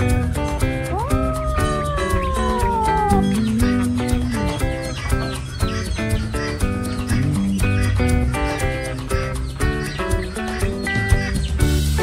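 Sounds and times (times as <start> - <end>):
steady low bass: 3.0 - 10.3.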